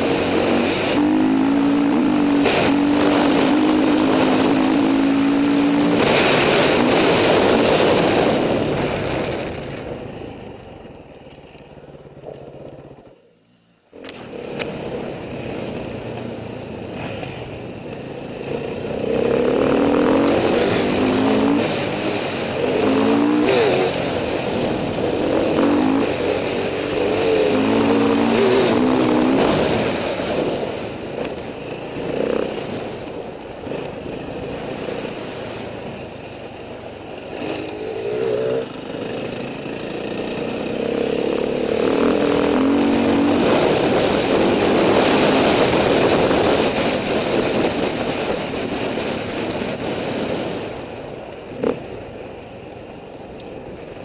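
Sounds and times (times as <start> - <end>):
dirt bike engine revving: 0.0 - 9.3, 16.8 - 30.8, 31.6 - 32.9, 37.1 - 49.2.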